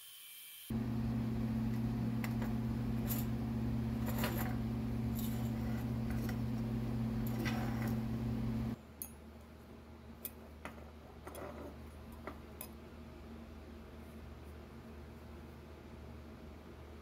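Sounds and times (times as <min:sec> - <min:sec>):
welding arc electric hum: 0:00.6 - 0:08.8.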